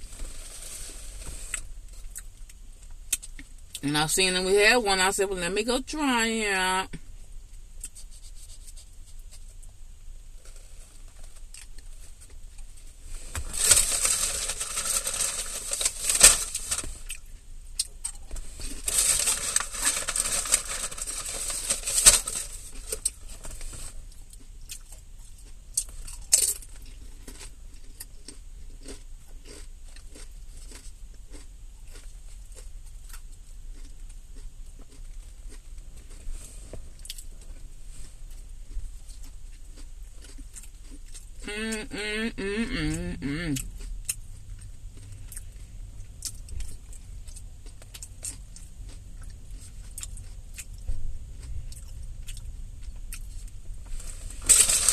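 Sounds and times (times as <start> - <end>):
chewing crunchy salad: 0.0 - 3.8, 7.4 - 41.5, 42.4 - 54.9.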